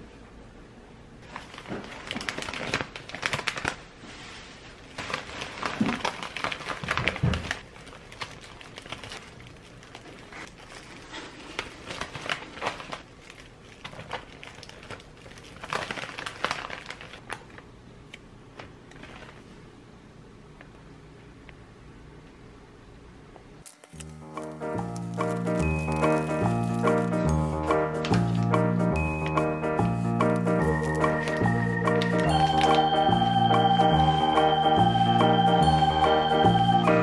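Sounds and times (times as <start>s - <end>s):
paper bags and plastic glove crinkling: 1.2s - 17.7s, 18.6s - 19.6s, 23.7s - 33.8s.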